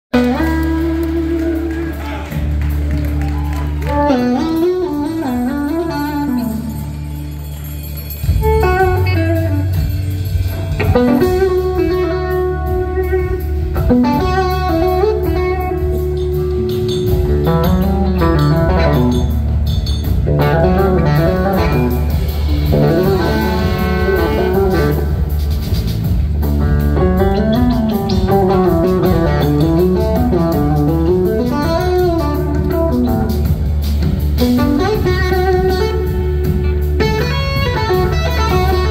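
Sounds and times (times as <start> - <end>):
band playing: 0.1 - 38.9
electric guitar blues lead: 0.1 - 38.9
sustained low bass: 15.8 - 38.9.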